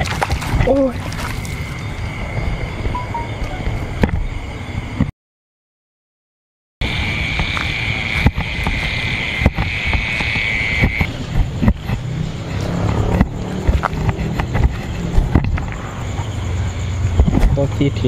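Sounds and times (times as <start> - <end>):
high-pitched drone: 3.0 - 4.0
handheld camera knocks and rubbing: 8.2 - 12.0, 13.0 - 15.8.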